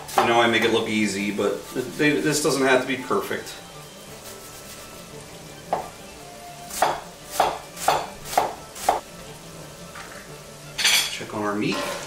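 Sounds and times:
faint meat sizzling: 0.0 - 12.0
knife chopping on wooden board: 6.7 - 9.0.

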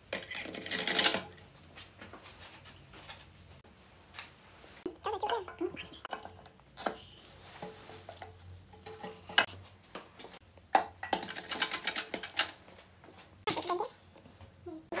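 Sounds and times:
metal parts clinking and rattling: 0.0 - 1.5, 6.1 - 9.5, 10.6 - 12.6, 13.5 - 14.0.

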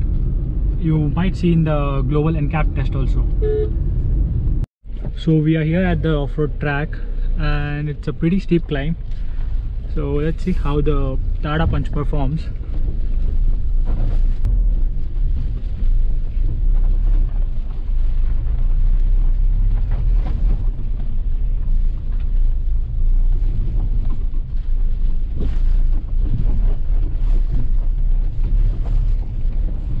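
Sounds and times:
car engine rumbling: 0.0 - 30.0
wind buffeting microphone: 8.5 - 30.0.

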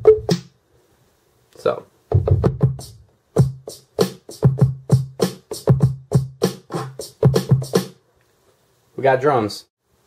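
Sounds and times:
drum machine beat: 0.0 - 0.6, 2.1 - 8.0.

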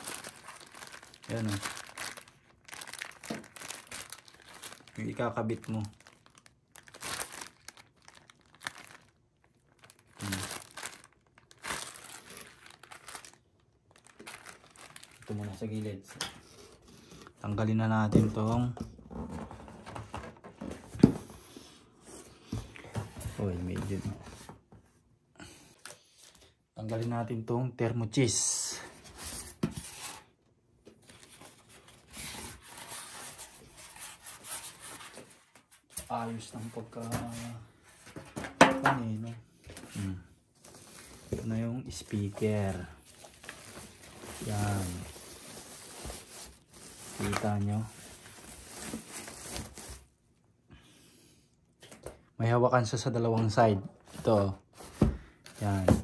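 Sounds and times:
plastic packaging crinkling: 0.0 - 16.1, 40.6 - 50.1
packing material scraping cardboard: 43.4 - 50.0.

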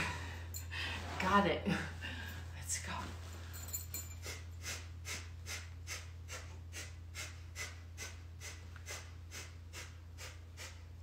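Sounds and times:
steady low hum: 0.0 - 11.0
rapid forced exhales through nose: 4.2 - 11.0.

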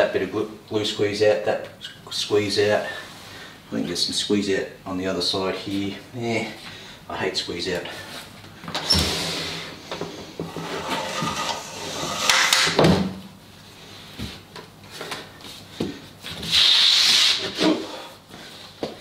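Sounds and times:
board sliding across wooden bench: 8.9 - 12.7.

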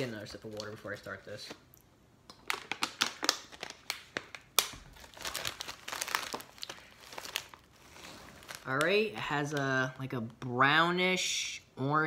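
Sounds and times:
thin plastic crinkling: 2.3 - 9.7.

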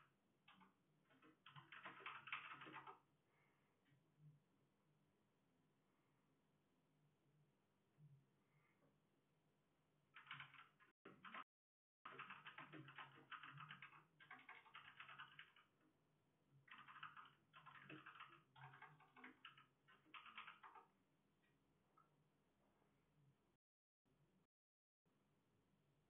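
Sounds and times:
rapid typing on keyboard: 0.5 - 3.0, 10.2 - 15.8, 16.7 - 20.9.

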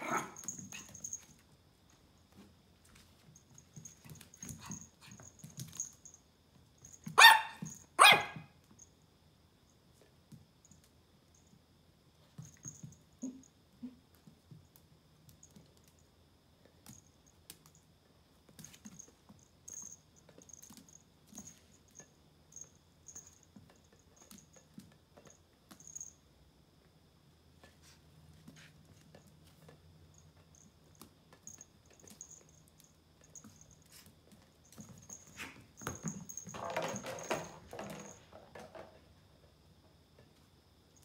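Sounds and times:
puppy barking: 7.2 - 8.5.

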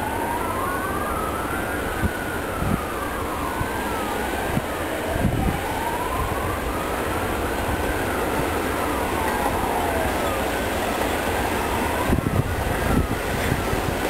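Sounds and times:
wailing siren: 0.0 - 14.0
diesel locomotive rumble: 3.5 - 14.0
train wagons clunking: 7.6 - 12.9.

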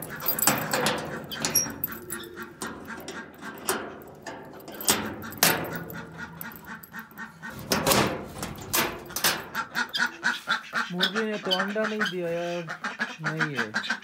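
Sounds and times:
metal door scraping open: 0.0 - 10.0
metal door bolt clanking: 0.0 - 10.1
ducks quacking: 5.6 - 7.8, 9.3 - 14.0.

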